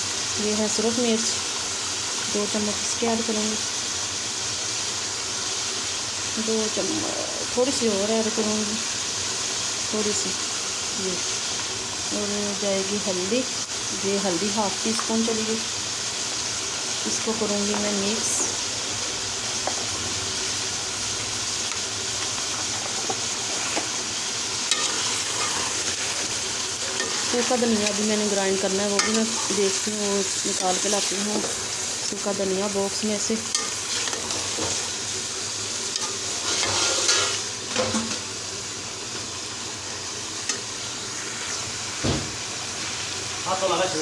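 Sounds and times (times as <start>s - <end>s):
chicken sizzling in a pot: 0.0s - 44.0s
spatula scraping a pot: 24.7s - 28.0s, 35.9s - 37.4s.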